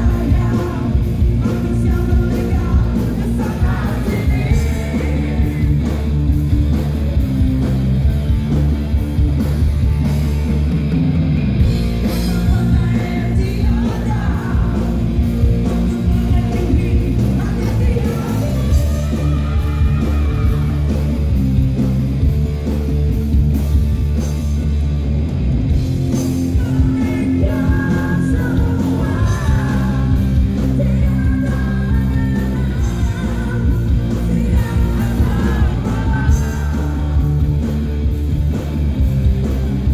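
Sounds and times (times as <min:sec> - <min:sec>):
person singing: 0:00.0 - 0:06.0, 0:12.2 - 0:15.0, 0:15.7 - 0:21.1, 0:26.5 - 0:37.6
live rock band playing: 0:00.0 - 0:39.9.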